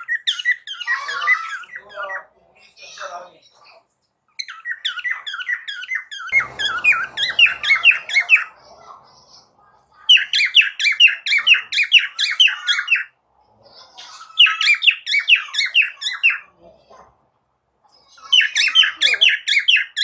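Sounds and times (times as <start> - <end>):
cockatiel chirping: 0.0 - 2.2, 4.4 - 8.6, 10.1 - 13.1, 14.3 - 16.5, 18.2 - 20.0.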